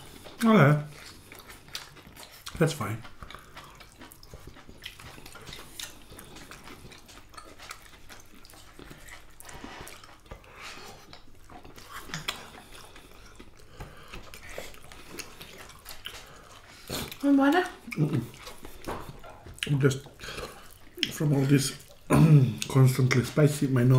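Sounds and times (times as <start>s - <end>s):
fingers mixing food on plates: 0.0s - 23.9s
soft chewing: 0.0s - 23.9s.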